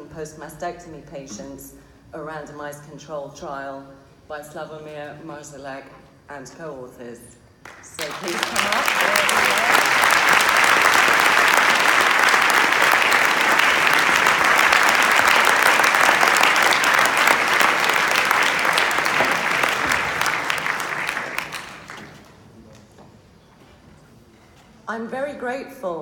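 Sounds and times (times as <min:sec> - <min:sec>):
audience applauding: 0:07.6 - 0:22.3.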